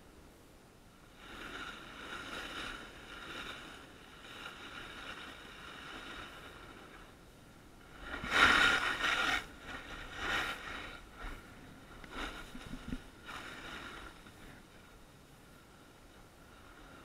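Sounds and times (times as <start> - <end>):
ski edges scraping snow: 7.9 - 14.6.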